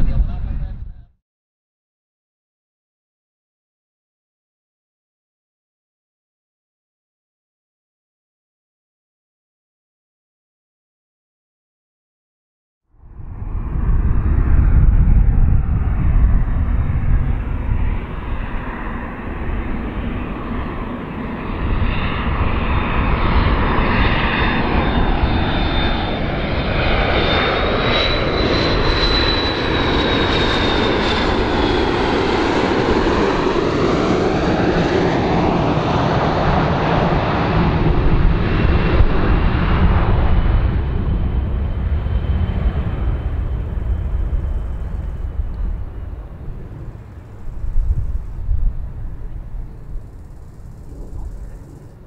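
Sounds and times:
high jet engine whine: 0.0 - 1.2, 12.9 - 52.0
jet engine deep rumble: 0.0 - 1.2, 12.9 - 52.0.

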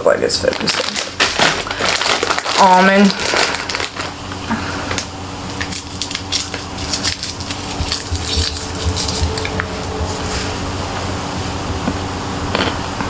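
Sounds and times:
foil wrapper crinkling: 0.4 - 4.2, 4.9 - 10.0.

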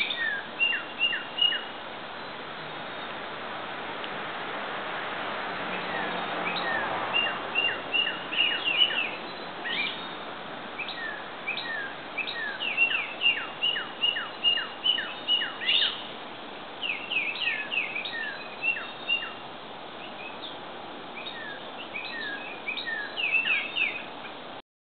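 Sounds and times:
birds chirping and whistling: 0.0 - 1.7, 5.8 - 10.2, 10.8 - 16.1, 16.8 - 19.4, 21.2 - 24.1
steady background hiss: 0.0 - 24.6.

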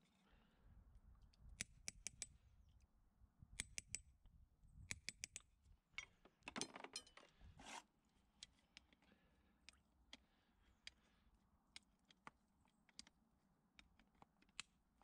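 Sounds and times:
metal tools rattling: 6.6 - 7.2.

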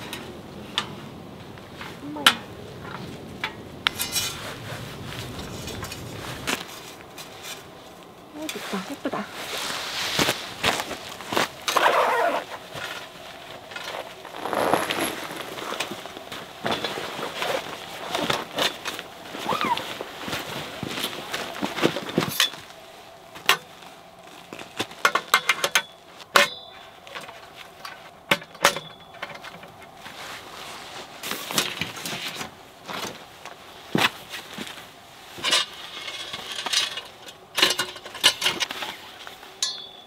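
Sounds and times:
metal poles clicking and clinking: 3.4 - 4.4, 25.0 - 30.0, 35.4 - 40.0.

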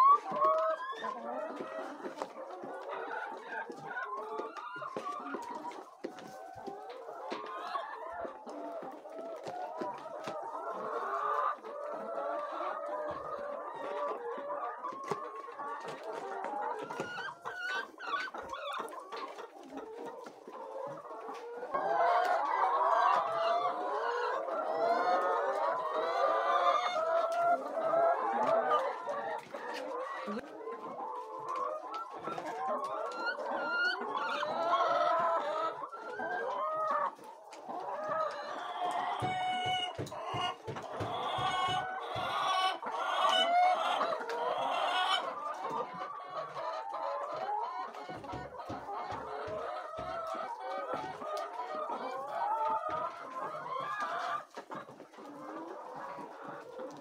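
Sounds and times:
hens clucking: 0.0 - 57.0.

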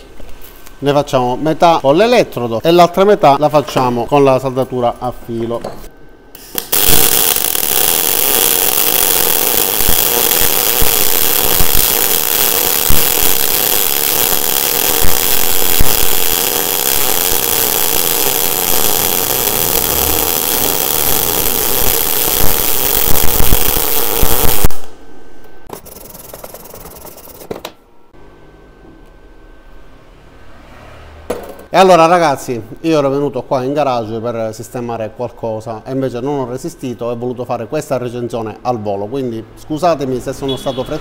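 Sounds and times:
welding arc crackle and hiss: 6.4 - 25.0
wire brush scratching metal: 25.7 - 27.5.

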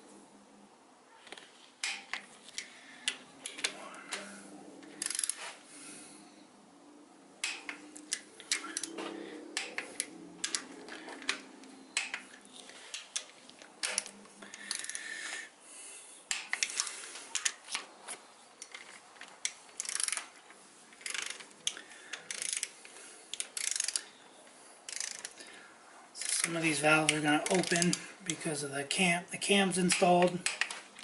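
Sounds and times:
socket ratchet clicking: 5.0 - 5.4, 7.4 - 9.0, 9.6 - 11.4, 13.0 - 15.0, 19.4 - 20.3, 21.0 - 24.1, 24.9 - 25.4, 26.2 - 28.0.

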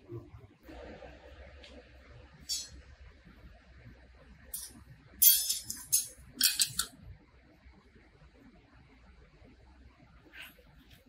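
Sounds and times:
metal clinks and scrapes: 4.6 - 6.9.

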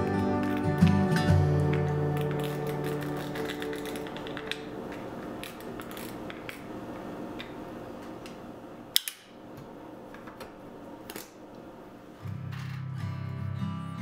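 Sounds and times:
film and spools rubbing: 1.7 - 6.6.

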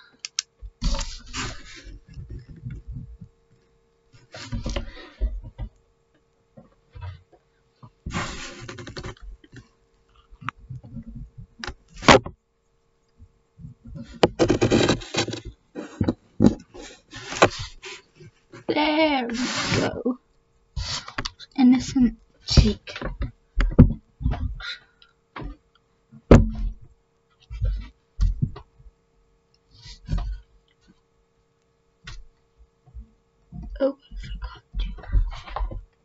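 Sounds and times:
pencil scratching on paper: 14.4 - 15.4.

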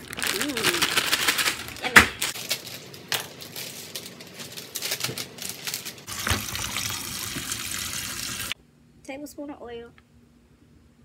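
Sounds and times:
scissors cutting plastic bag: 0.0 - 6.1
plastic bag crinkling: 0.0 - 6.2
tap water running into colander: 6.1 - 8.6.

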